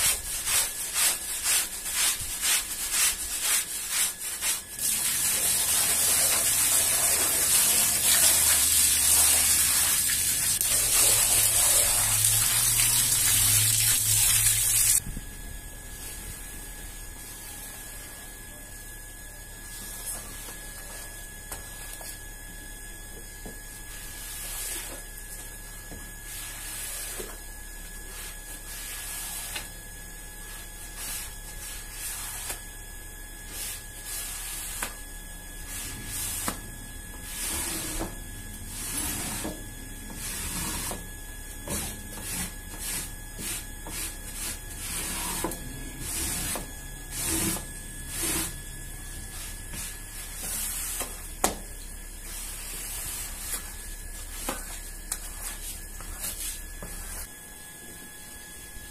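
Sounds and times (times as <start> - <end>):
squeegee swishing on wet floor: 0.0 - 15.0
electrical hum: 0.0 - 58.9.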